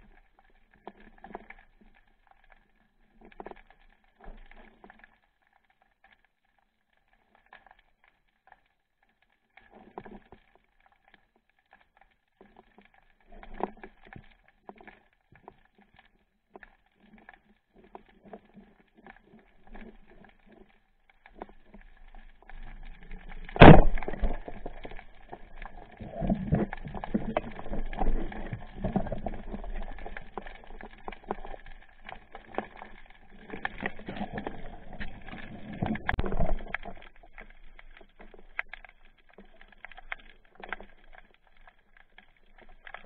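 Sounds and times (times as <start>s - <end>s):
faint underwater clicks: 0.0s - 43.0s
water noise: 17.8s - 43.0s.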